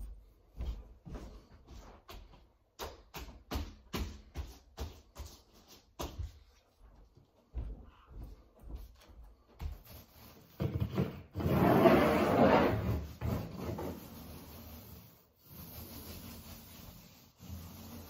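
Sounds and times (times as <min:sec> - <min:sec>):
paint roller rubbing on wall: 0:09.6 - 0:18.0.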